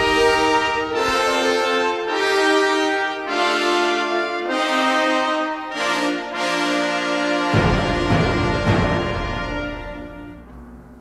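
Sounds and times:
held chords background music: 0.0s - 11.0s.

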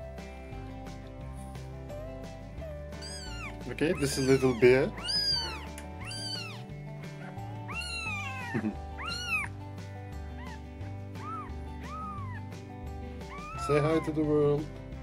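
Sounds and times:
soft background music: 0.0s - 15.0s
kitten mewing: 3.0s - 9.5s, 10.3s - 12.6s, 13.3s - 14.0s.

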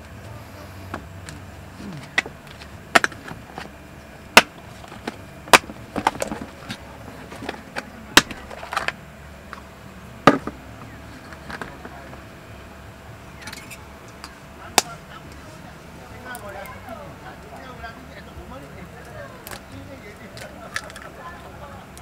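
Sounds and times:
hard plastic case clicks and snaps: 2.0s - 3.7s, 4.4s - 9.6s.

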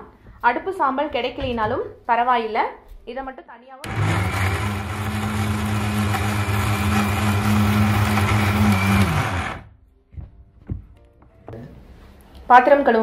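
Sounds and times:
mixer grinder motor humming: 3.8s - 9.7s.

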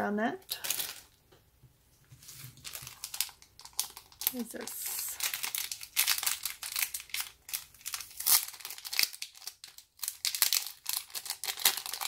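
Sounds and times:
plastic bags crinkling: 0.5s - 1.2s, 2.2s - 12.0s.

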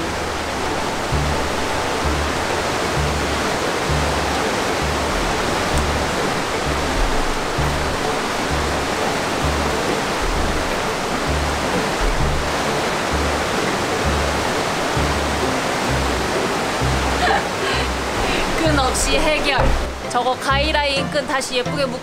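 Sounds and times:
music with bass beat: 0.0s - 17.2s
waterfall rushing: 0.0s - 22.0s.

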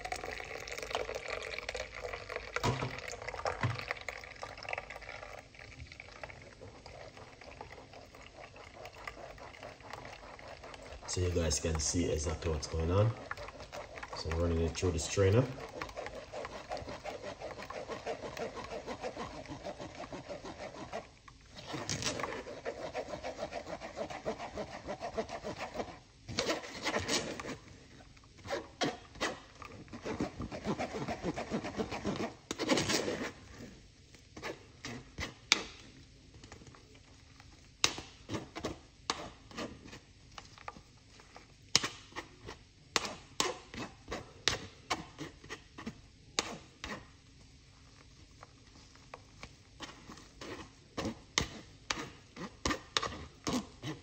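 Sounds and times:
pulp rasping through mesh strainer: 6.8s - 27.6s.

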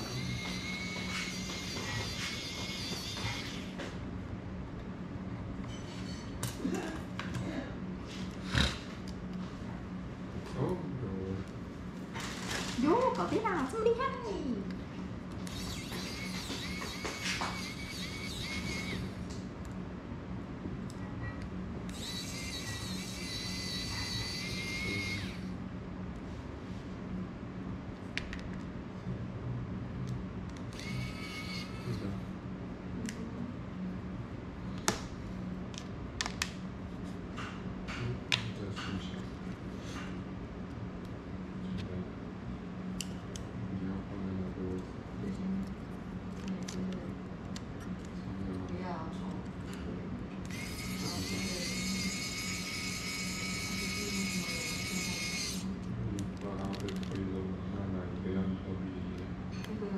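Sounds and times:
high-pitched electrical whine: 0.0s - 4.4s, 5.4s - 6.9s, 15.2s - 19.6s, 21.2s - 25.8s, 30.6s - 34.4s, 50.4s - 56.1s
steady low hum: 0.0s - 59.9s.

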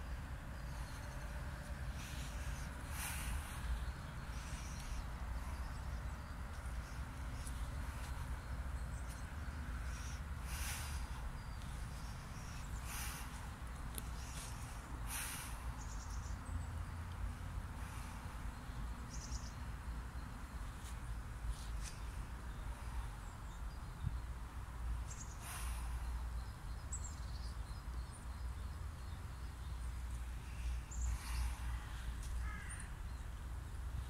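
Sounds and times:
bird calls: 0.0s - 16.7s, 30.0s - 33.3s
harsh bird calls: 30.2s - 33.4s.

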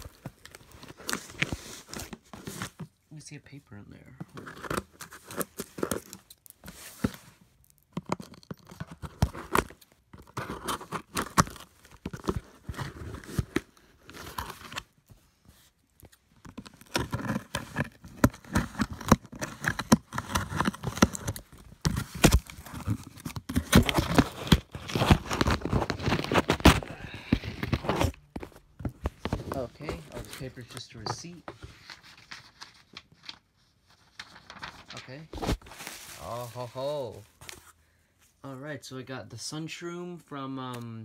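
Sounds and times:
paper rustling and crinkling: 0.0s - 2.9s, 4.2s - 37.8s
scissors cutting cardboard: 16.5s - 26.8s.

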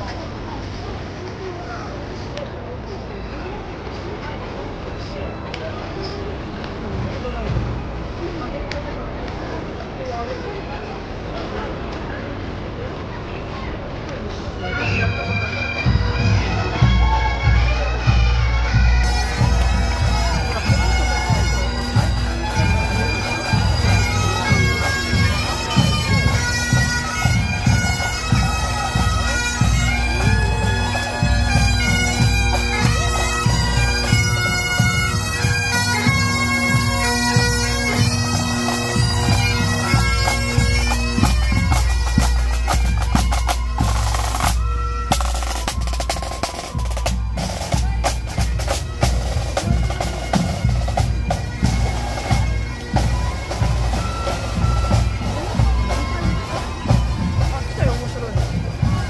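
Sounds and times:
bagpipes playing with drone: 14.6s - 59.0s
drums beating: 15.8s - 59.0s.

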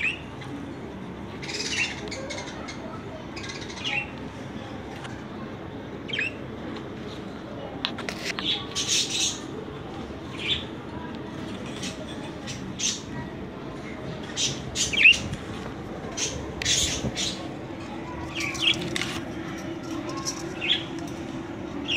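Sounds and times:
budgerigars chirping and squawking: 1.4s - 2.8s, 8.4s - 9.5s, 14.3s - 15.3s, 16.1s - 17.5s.

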